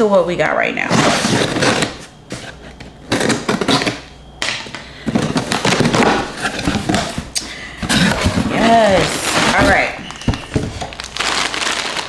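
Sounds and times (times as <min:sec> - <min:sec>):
cardboard box scraping and rustling: 0:00.9 - 0:04.0, 0:05.2 - 0:11.1.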